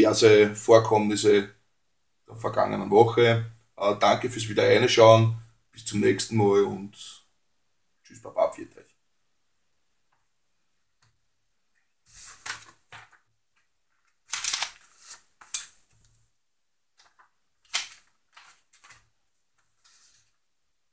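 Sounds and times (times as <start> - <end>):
paper and plastic folder rustling: 16.9 - 20.4.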